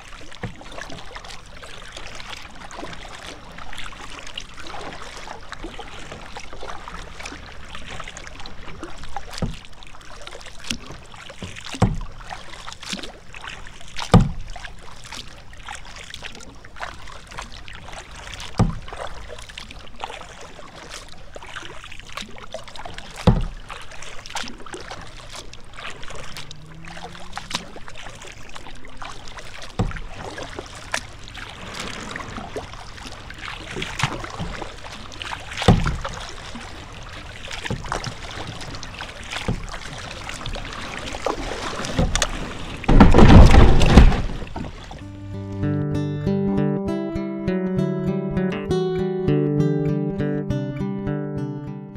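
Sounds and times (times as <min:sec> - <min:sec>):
water splashing against hull: 0:00.0 - 0:45.8
sharp knocks: 0:35.6 - 0:36.1, 0:42.0 - 0:44.7.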